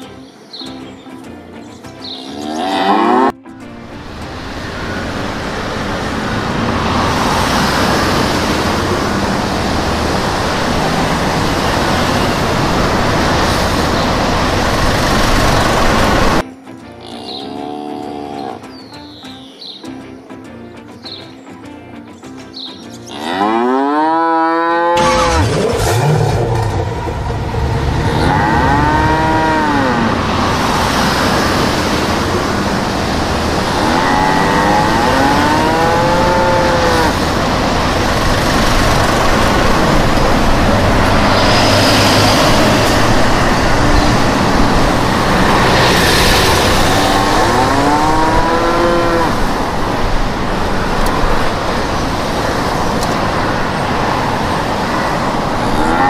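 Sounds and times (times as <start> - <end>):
cow mooing: 2.3 - 3.4, 17.0 - 18.6, 23.1 - 25.4, 27.8 - 30.4, 33.6 - 37.3, 46.6 - 49.5, 55.7 - 56.0
vehicle engine with road noise: 2.4 - 16.4, 23.9 - 56.0.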